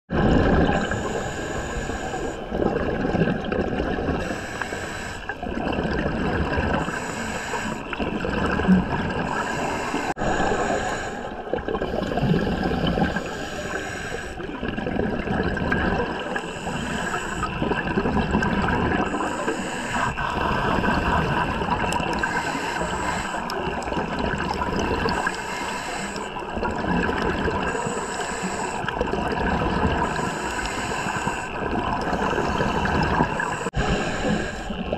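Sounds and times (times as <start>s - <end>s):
gurgling exhaled bubbles: 0.1s - 34.9s
regulator breathing hiss: 0.8s - 2.5s, 4.2s - 5.3s, 6.8s - 8.0s, 9.3s - 11.4s, 13.0s - 14.4s, 16.4s - 17.5s, 19.1s - 20.2s, 22.2s - 23.6s, 25.1s - 26.4s, 27.7s - 28.9s, 30.0s - 34.9s.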